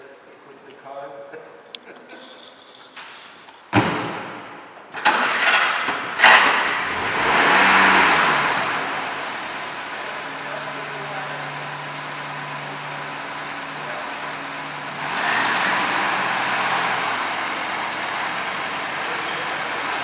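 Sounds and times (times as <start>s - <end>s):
car engine starting and revving: 5.0s - 20.0s.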